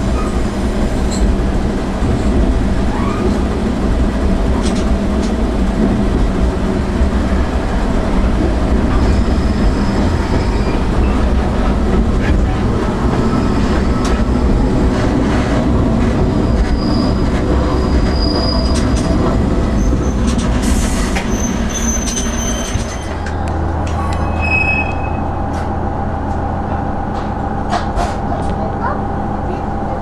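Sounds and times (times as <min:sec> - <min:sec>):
wheel squeals: 0:16.4 - 0:19.1, 0:21.2 - 0:23.3, 0:24.0 - 0:25.4.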